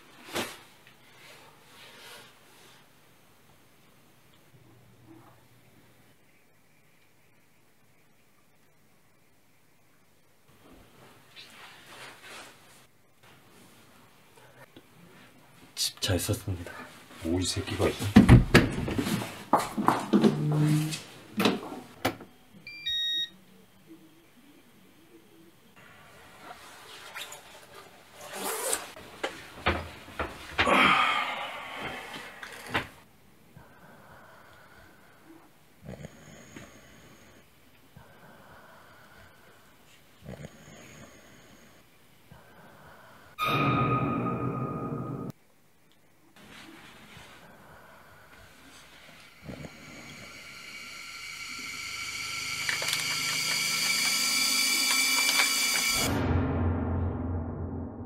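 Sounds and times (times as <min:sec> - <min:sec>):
high-pitched ringing drone: 0:49.7 - 0:56.1
low rumble: 0:56.0 - 0:58.0
thump: 0:56.1 - 0:58.0.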